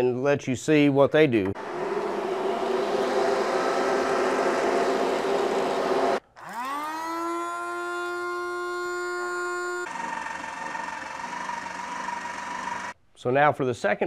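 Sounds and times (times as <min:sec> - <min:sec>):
coffee grinder motor whining: 0:01.6 - 0:13.0
electric appliance humming: 0:01.6 - 0:13.0.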